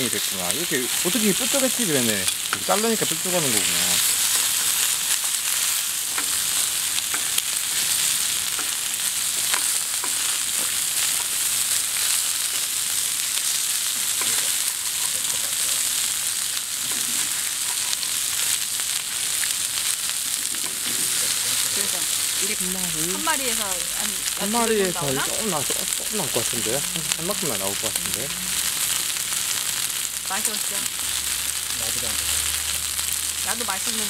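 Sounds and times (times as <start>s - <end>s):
meat sizzling on griddle: 0.0s - 34.0s
utensils clicking on griddle: 2.0s - 11.3s.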